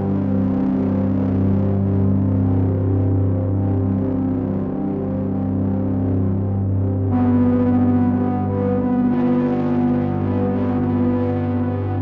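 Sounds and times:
soundtrack music with held chords: 6.5s - 12.0s.

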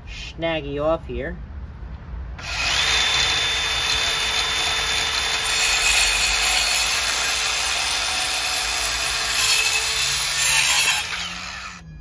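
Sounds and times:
circular saw cutting wood: 2.4s - 11.8s.

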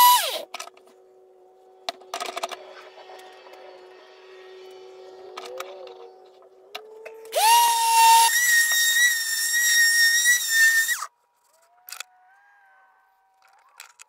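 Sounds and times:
electric sander whining: 0.0s - 0.5s, 7.0s - 11.1s.

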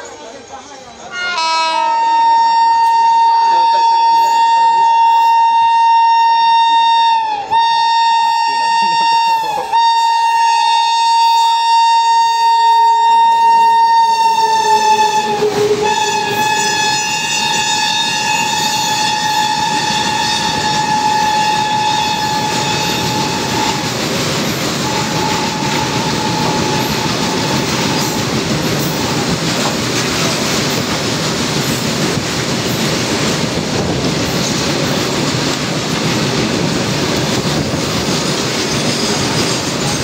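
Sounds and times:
train horn: 1.1s - 23.9s, 24.8s - 29.1s
goods train wagons rumbling and clattering: 12.5s - 40.0s.

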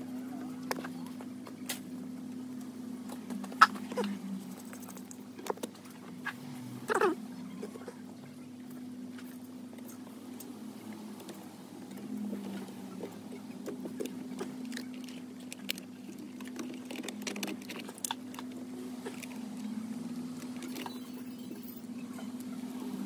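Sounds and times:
steady low hum: 0.0s - 23.0s
wiring rustles and clicks: 9.2s - 21.8s.

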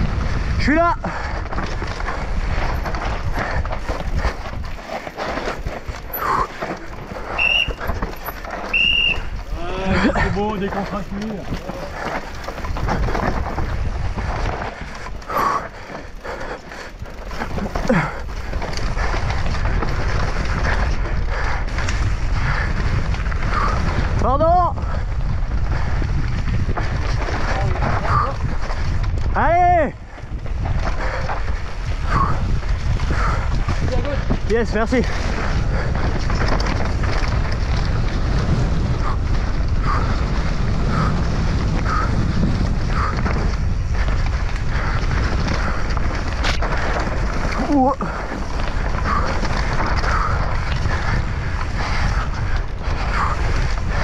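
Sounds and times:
bike tyres rumbling over dirt: 0.0s - 54.0s
wind buffeting microphone: 0.0s - 54.0s
bike rattling knocks: 1.4s - 21.1s.

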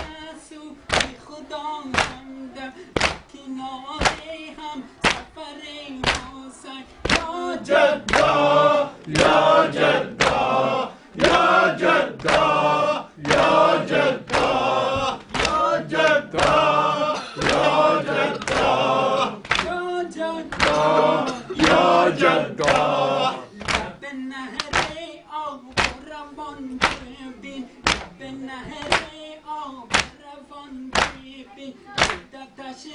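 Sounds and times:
crowd chanting a lament: 0.0s - 32.9s
hand slaps on chests: 0.9s - 1.2s, 1.9s - 2.2s, 3.0s - 3.3s, 4.0s - 4.3s, 5.0s - 5.3s, 6.0s - 6.4s, 7.0s - 7.3s, 8.0s - 8.4s, 9.0s - 10.5s, 12.2s - 12.6s, 13.2s - 16.6s, 17.4s - 19.8s, 20.5s - 21.0s, 21.6s - 21.8s, 22.6s - 23.0s, 23.6s - 24.0s, 24.6s - 25.0s, 25.8s - 26.1s, 26.8s - 27.1s, 27.8s - 28.2s, 28.8s - 29.2s, 29.9s - 30.2s, 30.9s - 31.3s, 32.0s - 32.3s.

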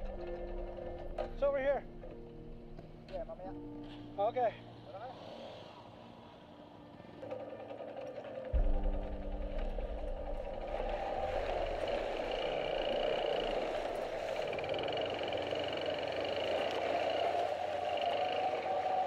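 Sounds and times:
motorcycle engine running: 8.2s - 19.0s.

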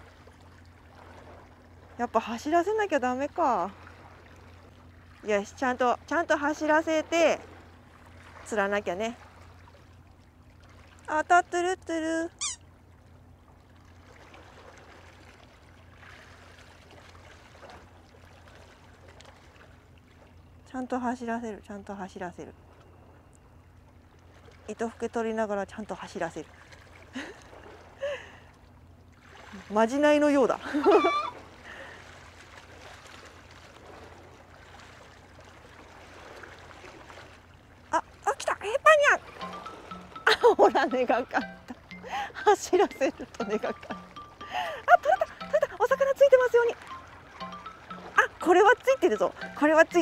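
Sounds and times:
low steady hum: 0.0s - 50.0s
water lapping and trickling: 0.0s - 50.0s.

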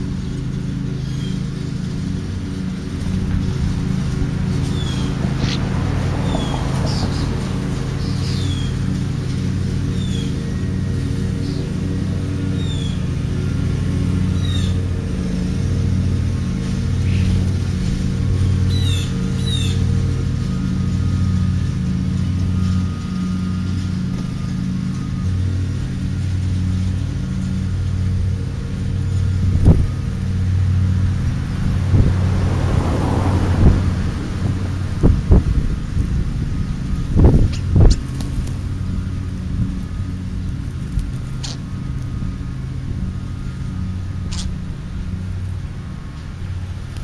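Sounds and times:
low engine hum: 0.0s - 47.0s
rising rustle: 0.0s - 47.0s
bird chirps: 8.0s - 8.8s, 9.9s - 10.6s, 12.6s - 13.0s, 18.7s - 19.8s.

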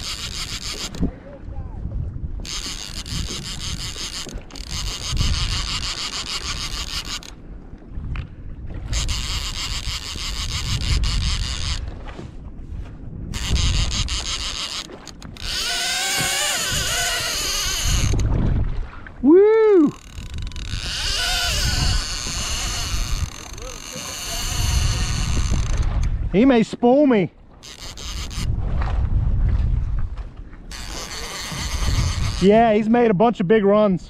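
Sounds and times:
fishing reel drag buzzing: 0.0s - 1.1s, 2.4s - 7.4s, 8.8s - 11.9s, 13.3s - 18.3s, 19.8s - 26.1s, 27.6s - 28.6s, 30.7s - 32.6s
wind on microphone: 0.0s - 26.6s, 27.5s - 33.3s.

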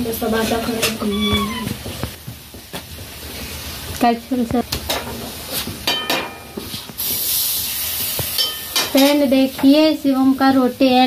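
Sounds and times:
bread sizzling on a griddle: 1.8s - 11.0s
utensils clinking and tapping: 5.8s - 6.8s, 8.4s - 9.2s
loud hiss: 6.8s - 9.0s.

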